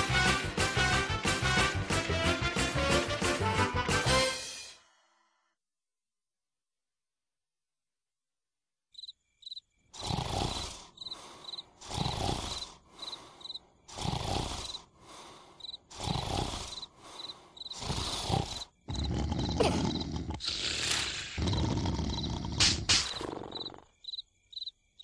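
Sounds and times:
crickets chirping: 8.9 - 25.0
cartoon snoring: 9.9 - 24.0.

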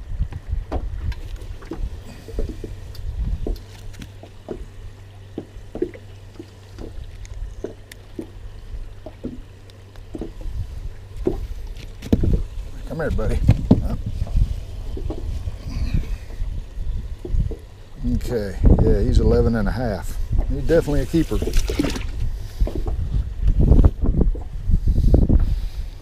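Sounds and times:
low steady rumble: 0.0 - 26.0
taps and knocks on aluminum boat: 13.4 - 14.0.

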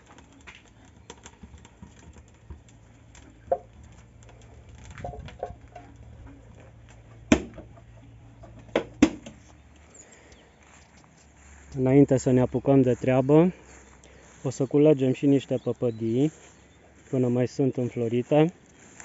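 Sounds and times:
low steady hum: 0.0 - 19.0
wood fire crackling: 0.0 - 19.0
loud sharp wood cracks: 6.9 - 7.7, 8.7 - 9.5.

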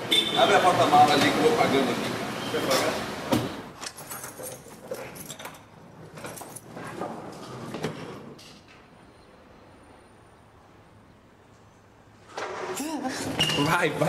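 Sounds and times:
keys rattling in door lock: 3.8 - 6.7.

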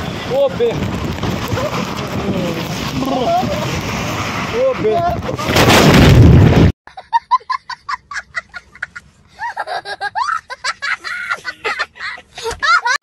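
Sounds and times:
boy laughing hysterically: 3.0 - 3.7, 6.9 - 13.0.

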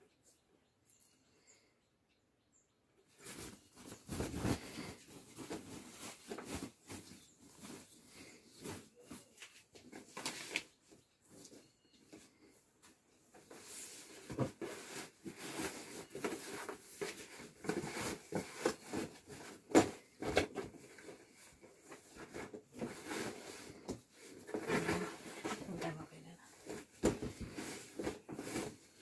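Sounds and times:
cardboard box and bag rustling: 3.2 - 10.6, 13.4 - 29.0.

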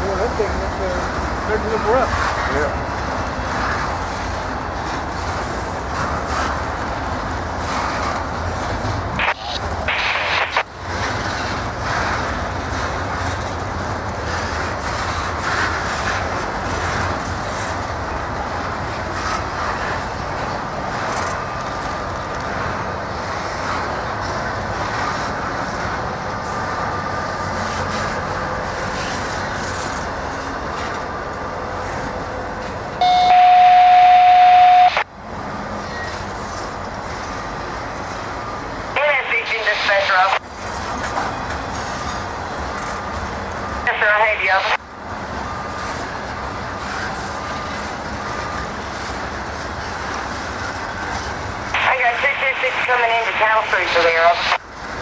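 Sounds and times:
freight train rumbling: 0.0 - 55.0
loud steady tone: 9.2 - 10.7, 32.9 - 35.1, 38.8 - 40.4, 43.6 - 44.9, 50.7 - 54.6.

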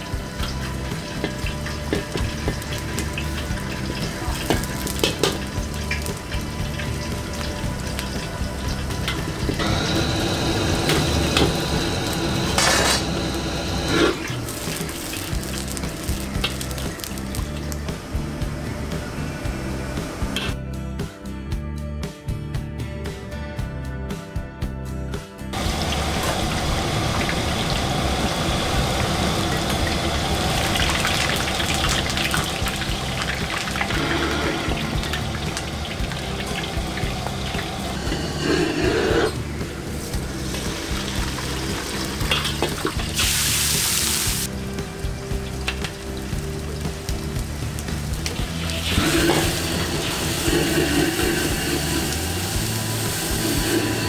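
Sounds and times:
food sizzling in hot oil: 0.0 - 20.5, 25.6 - 54.0
gas burner rumble: 0.0 - 20.6, 25.5 - 54.0
music: 0.0 - 54.0
metal ladle scraping wok: 7.8 - 17.4, 33.2 - 35.5, 36.1 - 42.8.

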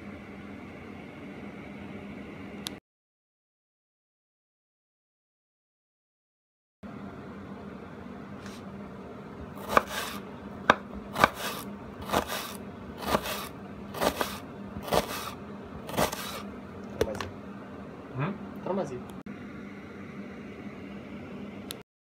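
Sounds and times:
faint steady hum: 6.8 - 21.8
knife slicing onion on board: 9.6 - 16.5.

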